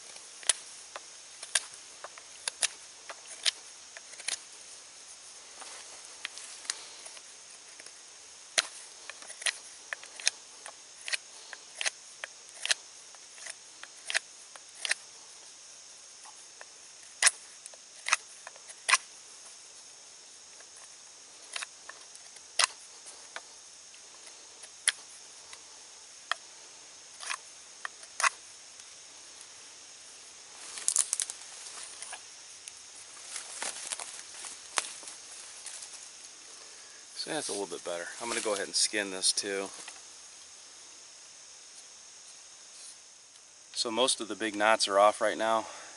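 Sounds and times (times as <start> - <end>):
knife scraping wood: 8.6 - 12.8, 13.4 - 15.1.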